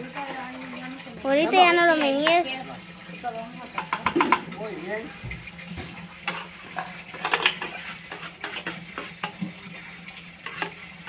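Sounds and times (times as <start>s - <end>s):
light sizzle: 0.0s - 11.0s
metal spoon scraping pan: 6.2s - 9.4s, 10.4s - 10.8s.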